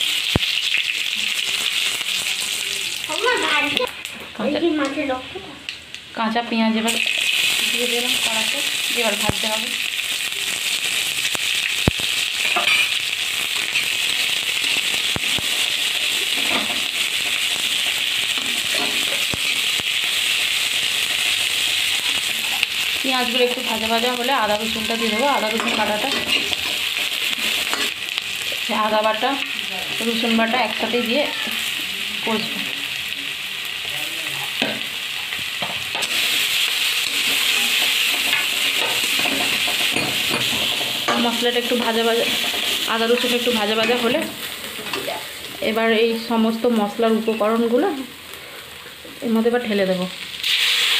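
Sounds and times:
onions sizzling in oil: 0.0 - 50.9
spatula scraping a pan: 24.8 - 28.0, 36.0 - 45.1.

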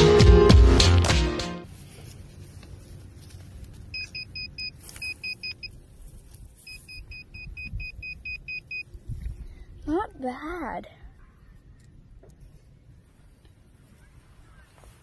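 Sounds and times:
metal detector short beeps: 3.9 - 5.8, 6.6 - 8.9.

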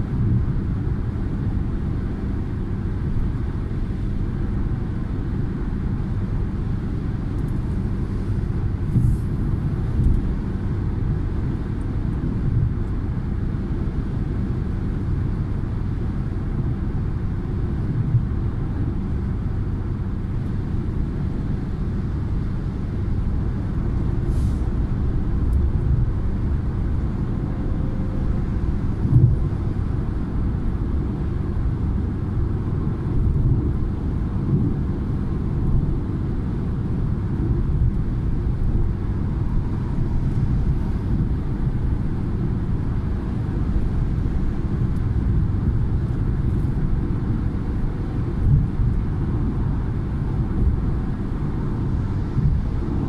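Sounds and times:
car tyre and engine rumble: 0.0 - 53.0.

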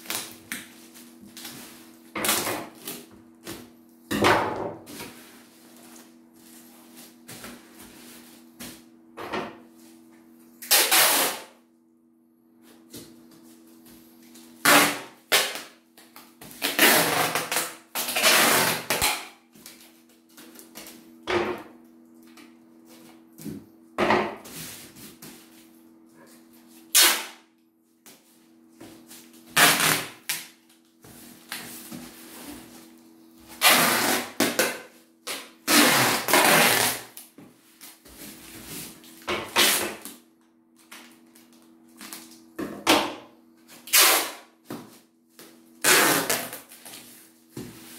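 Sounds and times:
packing tape ripping: 10.6 - 11.5, 14.6 - 15.8, 16.6 - 19.8, 26.9 - 27.4, 29.6 - 30.6, 33.6 - 37.3, 39.5 - 40.2, 43.8 - 44.5, 45.8 - 47.0.

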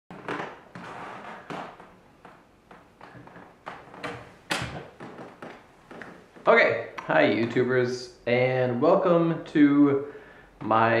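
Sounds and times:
irregular knocks and bumps: 0.1 - 6.5.

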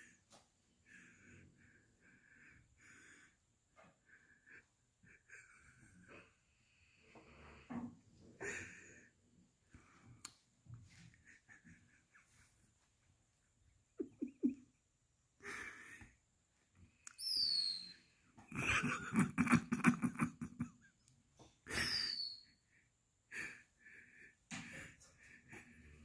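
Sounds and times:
person wheezing laughter: 14.0 - 14.7, 18.5 - 21.0, 21.6 - 22.4
high falling squeaks: 17.2 - 18.0.

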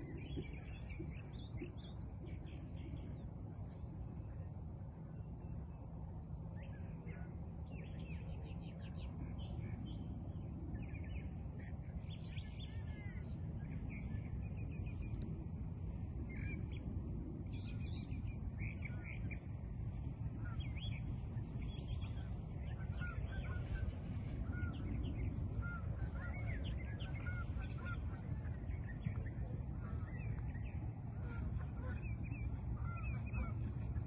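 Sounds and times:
steady low rumble: 0.0 - 34.0
birds chirping: 20.4 - 34.0.

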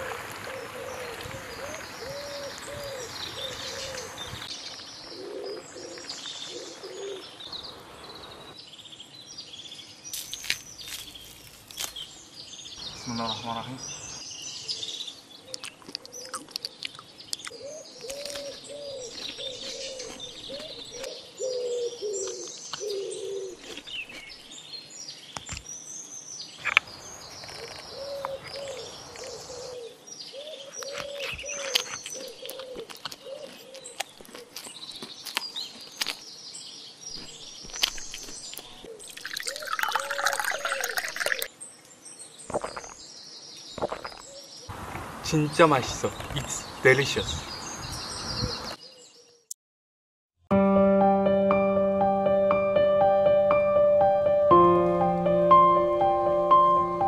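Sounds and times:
dove cooing: 0.0 - 4.2, 5.1 - 7.3, 17.6 - 23.6, 27.6 - 31.6
birds chirping: 0.0 - 49.5
chewing: 15.5 - 20.7, 23.5 - 24.3, 30.7 - 36.3, 37.2 - 41.5, 42.5 - 43.0
loud slurping: 42.5 - 43.0, 43.8 - 44.2.

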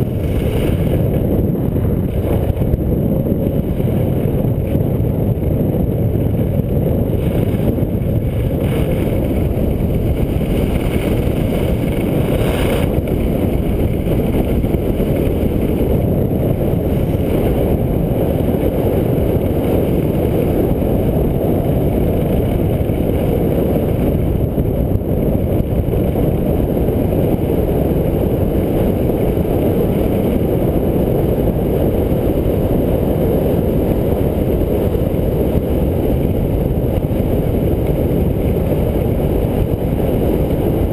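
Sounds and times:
skis scraping on snow: 0.0 - 2.7, 7.1 - 15.9
wind rush on microphone: 0.0 - 40.9.

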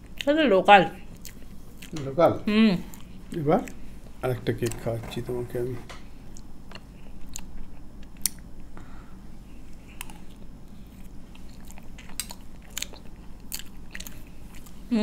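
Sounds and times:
person chewing: 1.1 - 2.0, 2.8 - 3.8, 6.3 - 8.5, 9.7 - 14.8.

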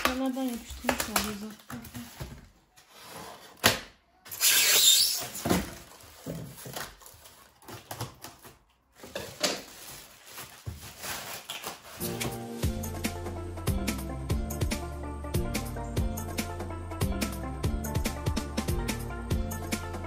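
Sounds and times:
plastic wrap rustling: 0.0 - 3.6, 4.3 - 12.4
foam scraping and squeaking: 4.3 - 6.8.

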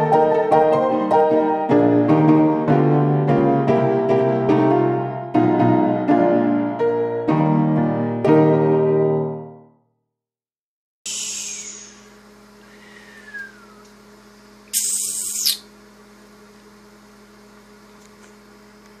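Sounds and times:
loud high hiss: 11.1 - 13.8
low room hum: 11.1 - 19.0.

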